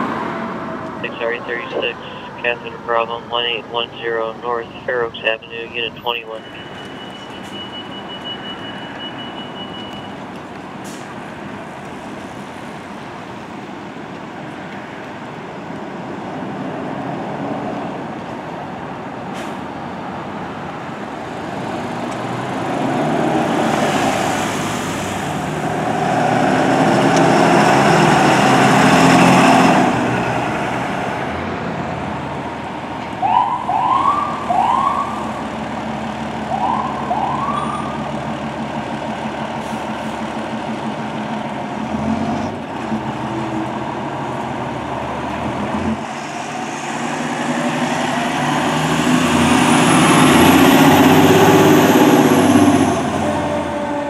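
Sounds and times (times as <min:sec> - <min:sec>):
ambulance engine passing: 0:00.0 - 0:14.6, 0:15.3 - 0:54.0
rising siren whoops: 0:33.2 - 0:35.4, 0:36.5 - 0:38.0.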